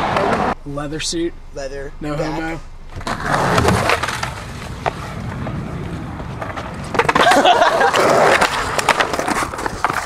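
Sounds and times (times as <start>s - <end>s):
skateboard wheels rolling on asphalt: 3.0s - 10.0s
skateboard clicks and clacks: 6.3s - 10.0s.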